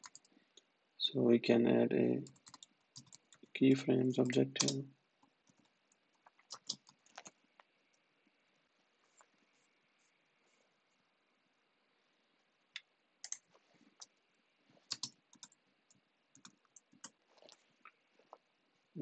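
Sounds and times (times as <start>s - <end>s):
keyboard keystrokes: 6.5s - 7.3s, 14.9s - 15.6s.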